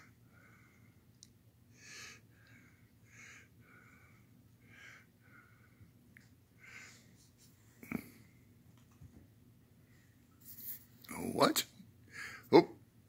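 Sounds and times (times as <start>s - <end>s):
wheezy breathing: 1.7s - 5.9s, 6.6s - 7.2s.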